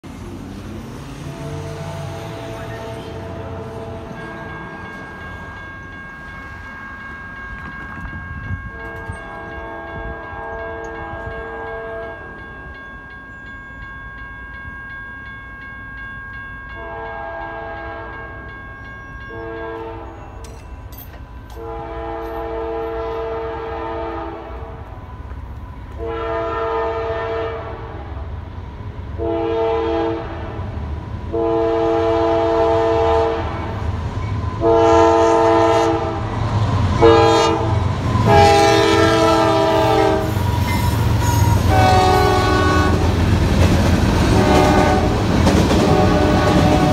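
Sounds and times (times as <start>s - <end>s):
train engine and wheels rumbling: 0.0s - 46.9s
railroad crossing bell ringing: 0.6s - 46.9s
locomotive air horn blasts: 1.2s - 4.6s, 8.7s - 12.2s, 16.8s - 18.3s, 19.4s - 20.2s, 21.6s - 24.8s, 26.0s - 28.0s, 29.2s - 30.7s, 31.3s - 33.8s, 34.6s - 36.4s, 37.0s - 43.2s, 44.2s - 46.9s.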